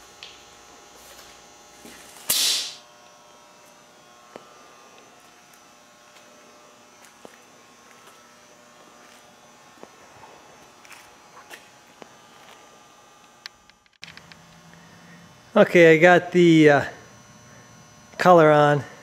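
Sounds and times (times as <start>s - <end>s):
faint steady hum: 0.0s - 19.0s
spray gun air hiss: 2.1s - 2.8s.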